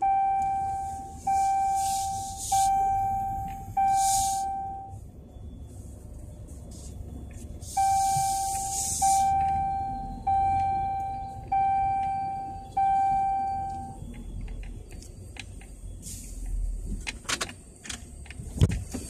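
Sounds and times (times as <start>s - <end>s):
car warning chime dinging: 0.0s - 5.0s, 7.6s - 14.1s
low steady rumble: 0.0s - 17.2s.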